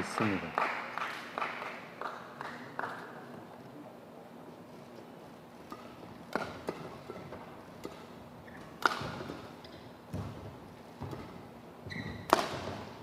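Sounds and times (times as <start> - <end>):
badminton racket hitting shuttlecock: 5.6 - 13.0
shoe squeaks on court floor: 11.8 - 12.3.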